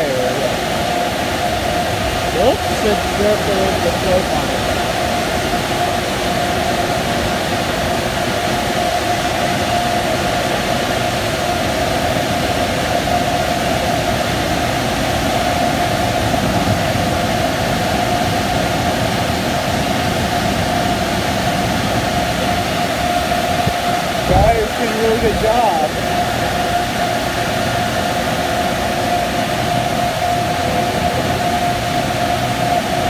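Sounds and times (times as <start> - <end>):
car wash dryer blowers: 0.0 - 33.0
fan whine: 0.0 - 33.0.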